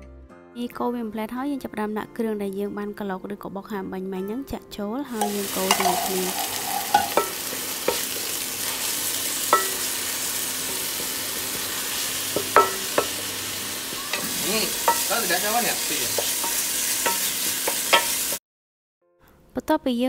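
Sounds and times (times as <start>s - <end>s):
wooden spatula knocking on pan: 5.2s - 8.4s, 9.5s - 18.2s
paste sizzling in oil: 5.2s - 18.4s.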